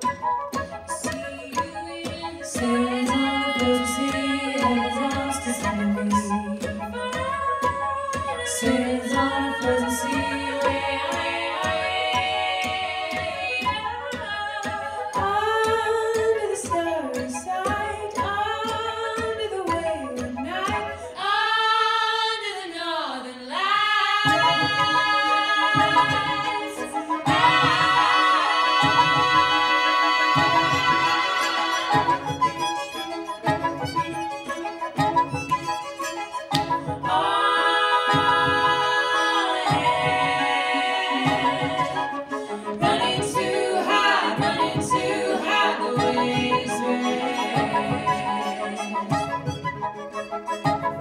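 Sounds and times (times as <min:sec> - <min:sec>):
sustained instrumental notes: 0:00.0 - 0:21.6, 0:24.0 - 0:51.0
women singing in harmony: 0:00.0 - 0:34.2, 0:36.5 - 0:50.8.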